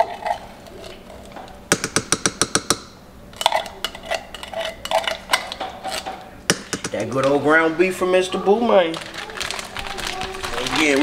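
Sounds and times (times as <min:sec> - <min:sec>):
knocking on steel bowls: 0:01.7 - 0:02.9, 0:06.5 - 0:07.4
spoon scraping metal can: 0:03.4 - 0:06.2.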